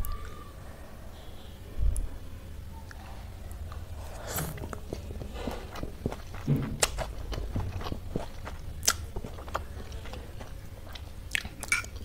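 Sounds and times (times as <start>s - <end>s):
chewing noodles: 3.6s - 12.0s
wet mouth clicks and smacks: 8.8s - 9.1s.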